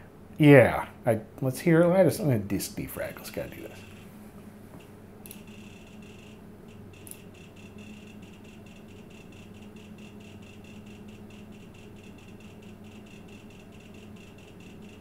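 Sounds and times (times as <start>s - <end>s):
steady low hum: 0.0s - 15.0s
rapid irregular clicking: 4.8s - 15.0s.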